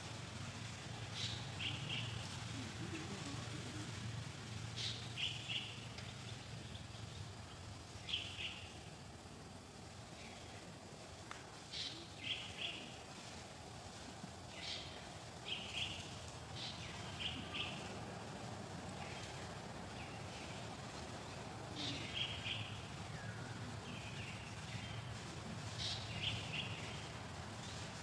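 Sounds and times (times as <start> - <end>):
steady background hiss: 0.0 - 28.0
birds chirping: 1.0 - 2.4, 14.5 - 18.0, 18.9 - 25.1, 25.7 - 27.9.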